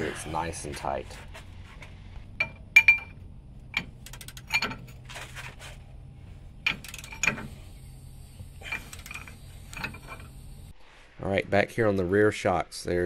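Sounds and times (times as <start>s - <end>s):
steady low hum: 0.0s - 13.0s
wrench metallic clicks and clinks: 2.4s - 5.0s, 6.6s - 7.6s, 8.6s - 10.3s.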